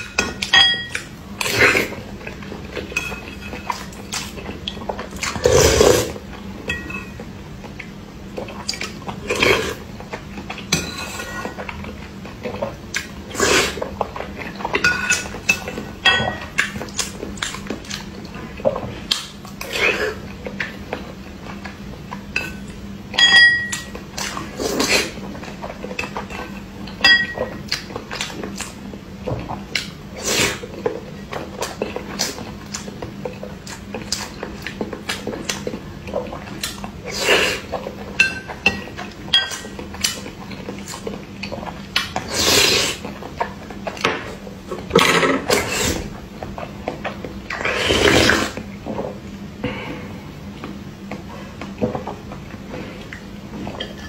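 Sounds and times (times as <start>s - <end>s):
eating and slurping: 0.0s - 23.0s, 23.6s - 54.0s.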